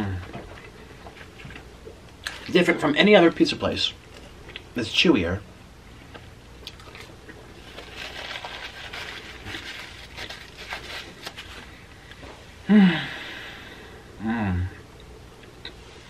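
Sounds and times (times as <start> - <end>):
person humming: 0.0 - 0.4, 12.7 - 13.3, 14.2 - 14.8
chewing with mouth clicks: 4.1 - 4.7, 6.6 - 7.4.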